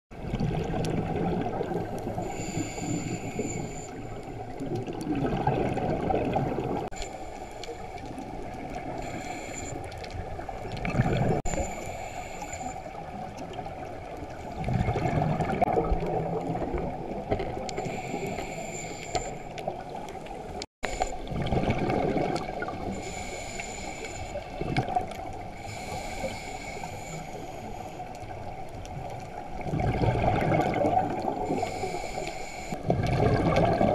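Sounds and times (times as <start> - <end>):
rush of exhaled bubbles: 0.2 - 7.0, 10.2 - 11.6, 13.0 - 18.3, 21.0 - 23.2, 29.4 - 32.0, 32.8 - 33.9
diver inhaling through regulator: 2.1 - 4.5, 8.8 - 10.0, 11.1 - 13.1, 17.7 - 19.6, 22.8 - 24.7, 25.4 - 28.2, 31.2 - 32.9.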